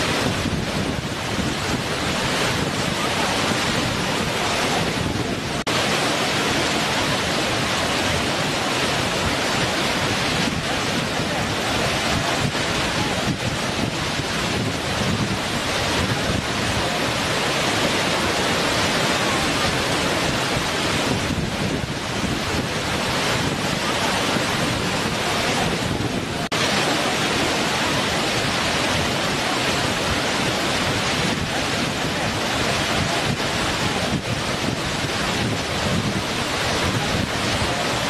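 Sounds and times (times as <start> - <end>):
waterfall rushing over rock: 0.0 - 38.0.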